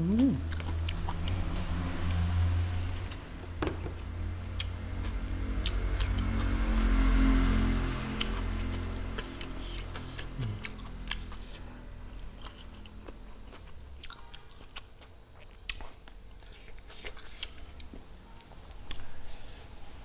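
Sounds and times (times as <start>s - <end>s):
man chewing and lip-smacking: 0.2s - 2.2s, 4.0s - 6.5s, 8.2s - 19.2s
man humming: 10.0s - 10.9s.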